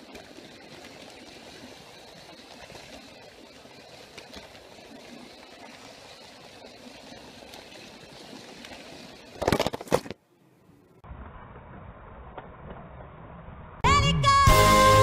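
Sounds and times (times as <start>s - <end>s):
toy train rolling on carpet: 0.0s - 10.1s.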